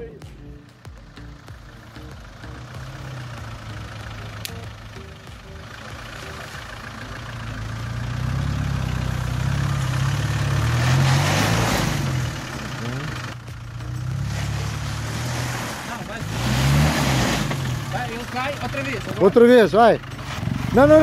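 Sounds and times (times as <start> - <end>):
truck engine climbing: 0.0 - 21.0.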